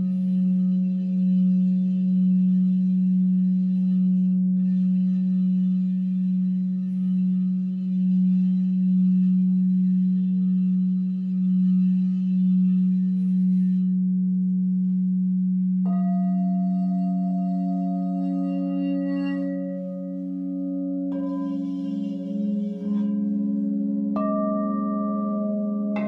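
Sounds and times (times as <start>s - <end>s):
low singing bowl tone: 0.0s - 26.0s
higher singing bowl ringing: 15.8s - 26.0s.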